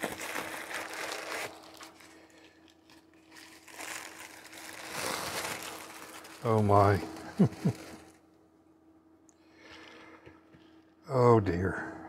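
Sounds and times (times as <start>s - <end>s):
plastic air pillows crinkling: 0.0s - 8.2s.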